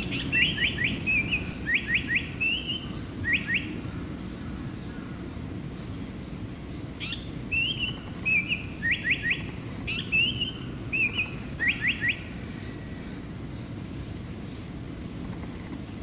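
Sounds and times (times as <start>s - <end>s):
bird singing whistled phrase: 0.2s - 3.8s, 7.0s - 12.3s.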